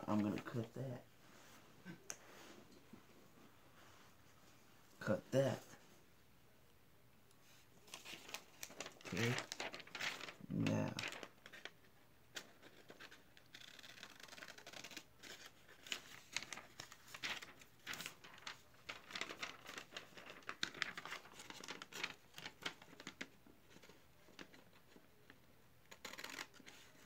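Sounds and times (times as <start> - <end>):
paper rustling: 7.5 - 27.0.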